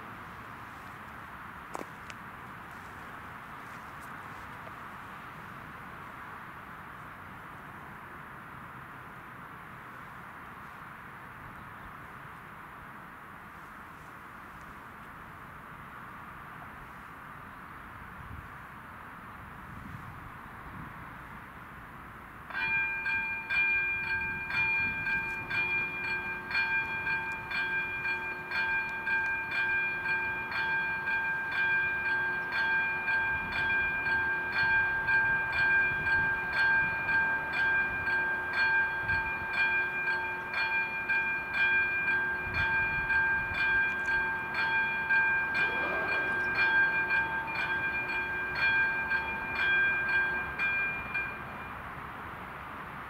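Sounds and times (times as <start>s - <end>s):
electric warning bell ringing: 22.5s - 51.9s.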